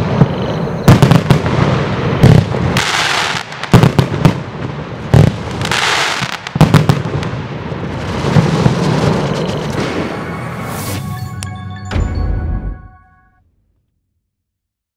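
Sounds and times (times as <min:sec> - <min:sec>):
firework launch shots and bangs: 0:00.0 - 0:11.0
firework hiss: 0:05.3 - 0:11.0.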